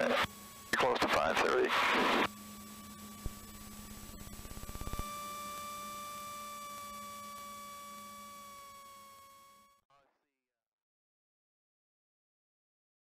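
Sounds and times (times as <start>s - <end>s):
low steady hum: 1.8s - 8.7s.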